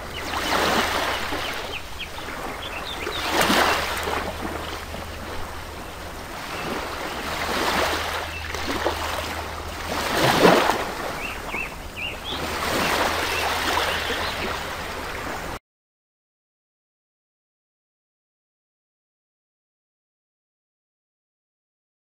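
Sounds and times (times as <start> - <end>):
rushing water-like noise: 0.0 - 15.6
steady low hum: 0.0 - 15.6.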